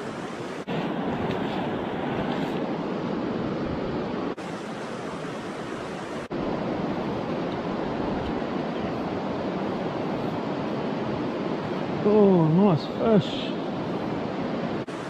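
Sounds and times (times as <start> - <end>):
river water rushing: 0.0 - 15.0.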